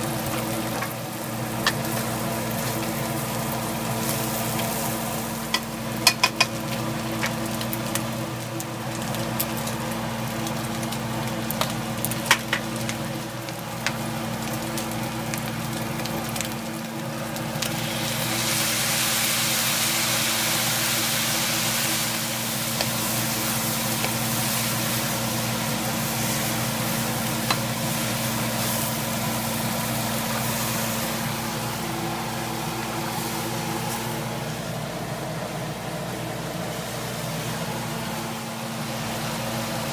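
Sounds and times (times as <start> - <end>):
food sizzling in a wok: 0.0 - 39.9
sauce hissing in hot pan: 17.5 - 34.6.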